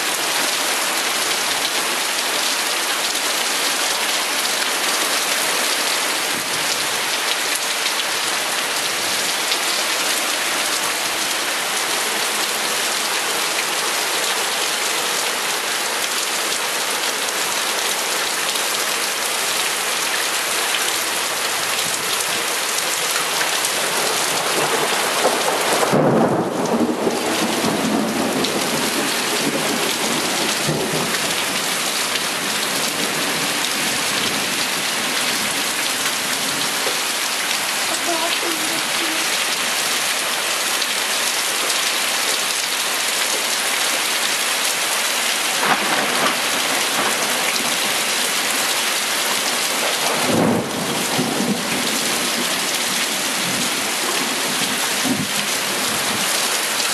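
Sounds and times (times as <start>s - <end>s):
heavy rain pouring: 0.0s - 56.9s
rumbling thunderclap: 45.6s - 47.7s, 50.0s - 51.6s.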